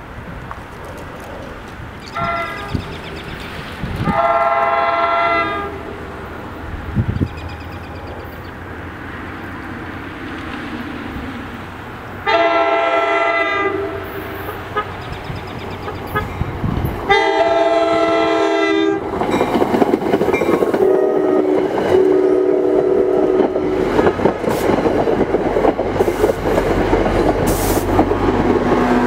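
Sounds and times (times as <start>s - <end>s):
train rumble: 0.0s - 29.0s
train air horn: 2.2s - 2.8s, 4.0s - 5.9s, 12.2s - 15.0s, 17.1s - 19.0s, 20.8s - 23.8s, 27.5s - 27.9s.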